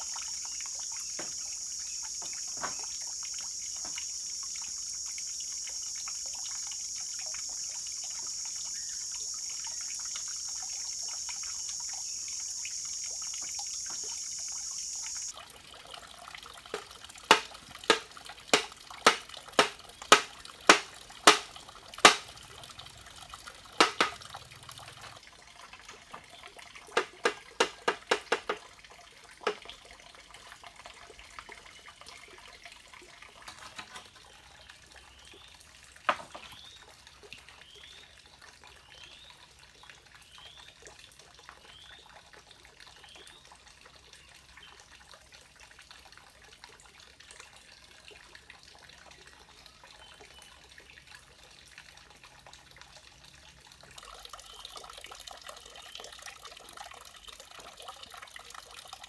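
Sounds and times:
high buzz of insects: 0.0 - 15.3
hammer knocking on timber: 18.6 - 21.4, 23.8 - 24.2, 27.0 - 28.6.

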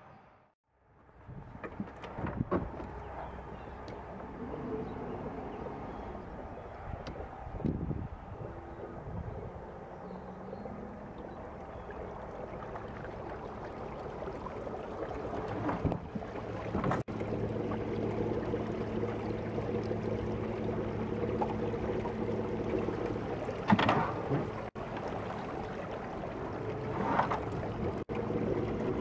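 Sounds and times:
water washing past hull: 1.1 - 29.0
electric trolling motor humming: 2.8 - 15.6, 16.4 - 24.1.

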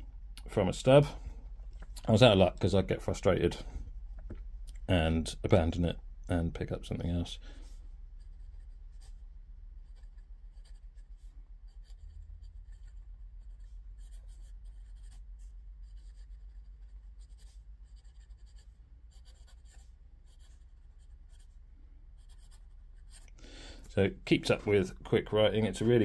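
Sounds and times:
low steady hum: 0.0 - 26.0
pen scratching on paper: 8.2 - 9.2, 9.8 - 21.6, 22.2 - 23.2.

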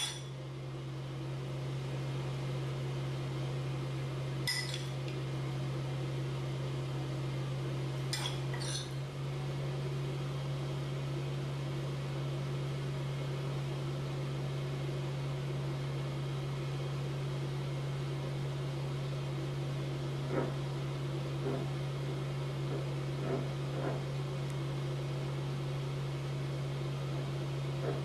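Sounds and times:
steady low hum: 0.0 - 28.0
spoon clinking against dishes: 4.5 - 4.9.

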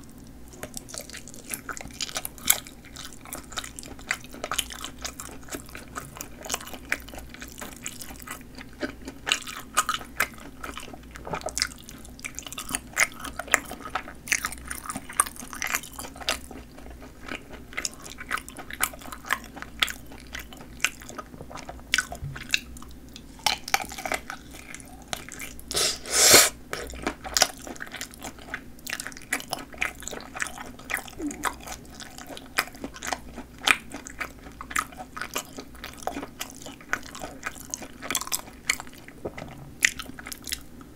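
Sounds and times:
chewing and biting sausages: 0.2 - 40.9.

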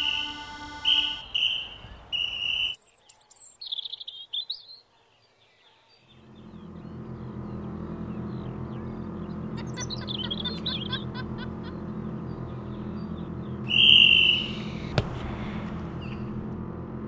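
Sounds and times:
referee whistle blast: 0.0 - 2.8, 13.7 - 15.0
birds chirping: 0.0 - 16.6
low steady drone: 6.1 - 17.0
football being kicked: 14.9 - 16.4.

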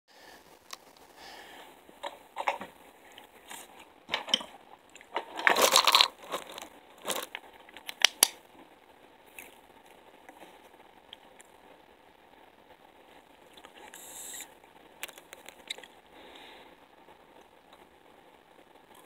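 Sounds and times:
crinkly rustling: 0.3 - 11.6.

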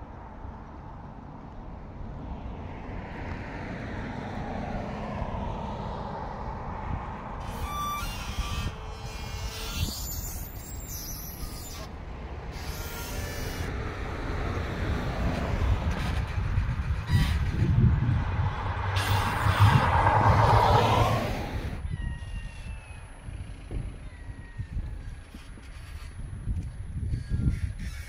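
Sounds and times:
highway traffic: 0.0 - 28.0
wind rumbling on microphone: 0.0 - 28.0
car passing close: 2.2 - 10.6, 11.4 - 21.8.

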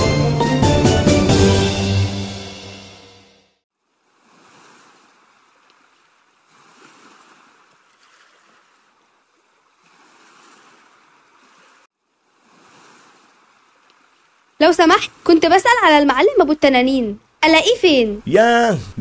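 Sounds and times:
faint waves washing onto beach: 3.9 - 15.6.

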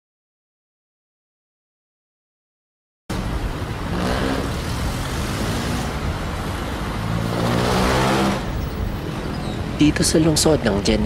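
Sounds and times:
vehicle engines running: 3.1 - 11.0.

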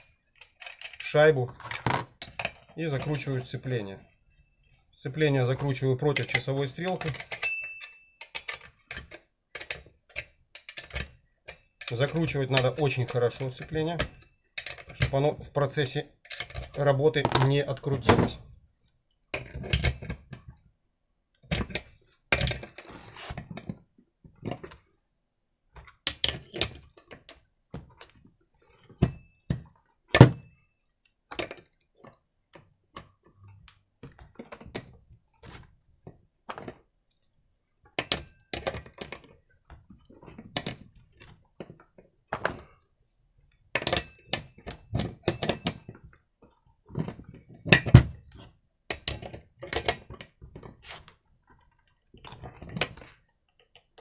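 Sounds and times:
wrench knocking and scraping on metal: 0.0 - 4.1, 16.3 - 18.4, 19.3 - 20.2.

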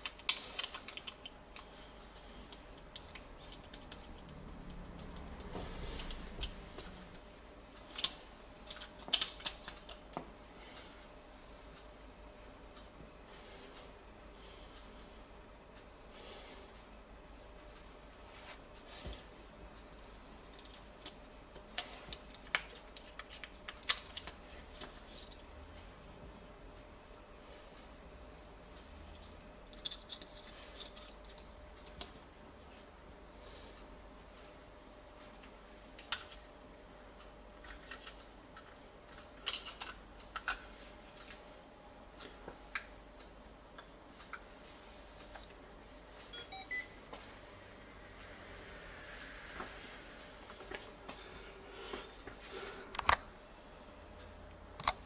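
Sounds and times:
short electronic beeps: 46.3 - 47.0.

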